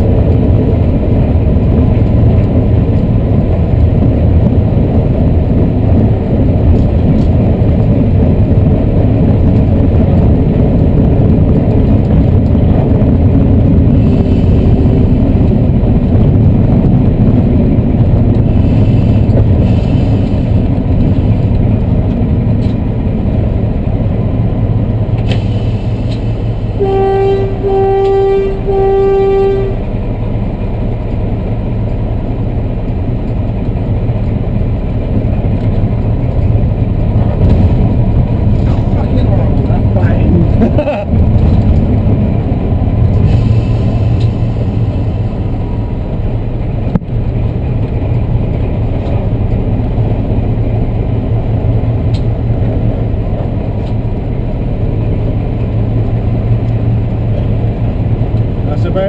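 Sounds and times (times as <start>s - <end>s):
locomotive engine rumbling: 0.0s - 59.0s
locomotive horn blasts: 26.7s - 30.0s.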